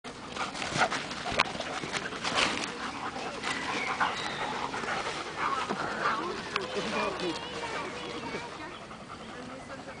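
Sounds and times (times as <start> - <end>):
dogs panting: 0.1 - 10.0
dogs scuffling: 0.2 - 8.8.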